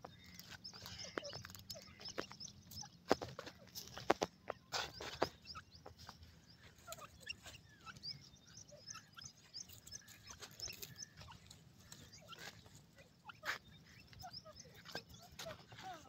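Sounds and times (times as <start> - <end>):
birds peeping chirps: 0.0 - 16.0.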